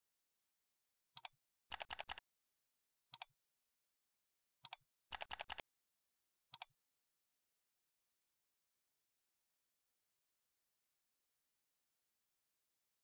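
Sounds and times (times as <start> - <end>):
computer mouse clicks: 1.2 - 2.2, 3.1 - 3.3, 4.6 - 5.6, 6.5 - 6.7
keyboard typing: 1.2 - 2.2, 4.7 - 5.6.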